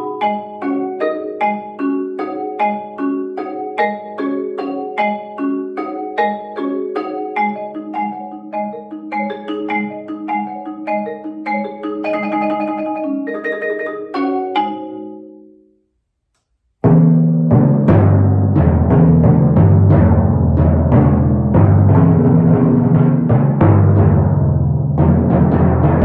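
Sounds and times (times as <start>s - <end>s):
marimba chords and notes: 0.0s - 15.7s
timpani strokes: 16.8s - 26.0s.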